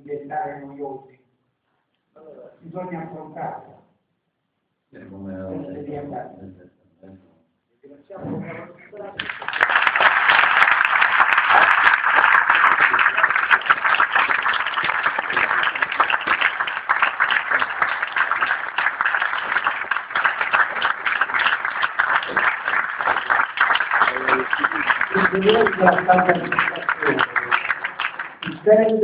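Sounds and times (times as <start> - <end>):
audience applauding: 9.2 - 29.0.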